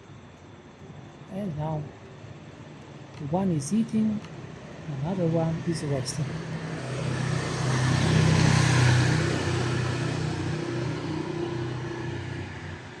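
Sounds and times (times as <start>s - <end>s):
vehicle engine passing by: 5.6s - 12.9s.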